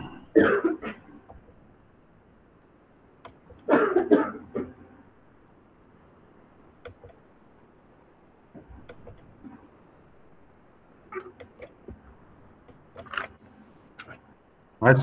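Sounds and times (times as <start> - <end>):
person coughing: 0.0 - 1.2, 3.6 - 4.8
soft clicks: 6.8 - 7.2, 8.6 - 9.6.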